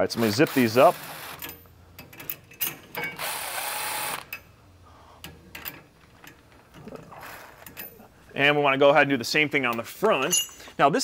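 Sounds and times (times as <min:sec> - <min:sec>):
power ratchet running: 0:00.1 - 0:01.6, 0:03.2 - 0:04.3.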